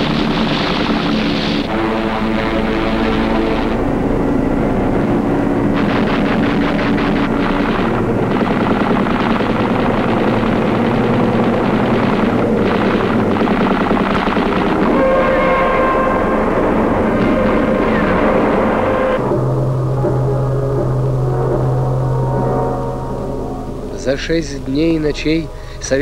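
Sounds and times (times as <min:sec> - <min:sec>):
aircraft engine drone: 0:00.0 - 0:26.0
held musical notes: 0:00.0 - 0:26.0
automatic gunfire bursts: 0:05.8 - 0:15.6.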